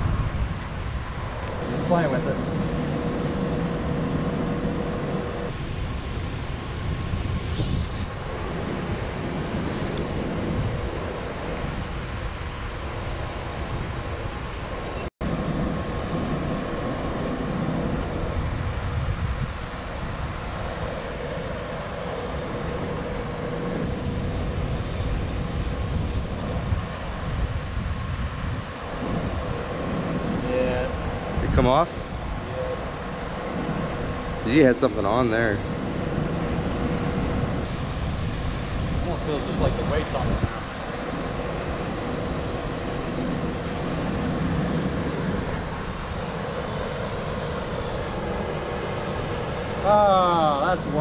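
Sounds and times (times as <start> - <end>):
low rumbling roar: 15.2 - 51.0.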